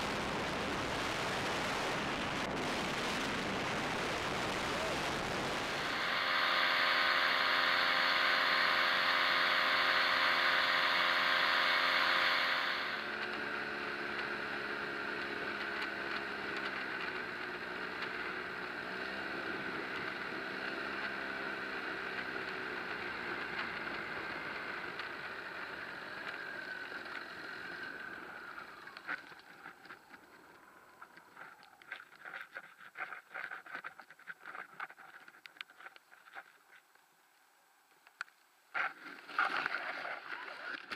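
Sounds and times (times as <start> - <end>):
engine humming: 0.0 - 32.4
clicks and flutters: 24.9 - 37.1, 37.9 - 40.9.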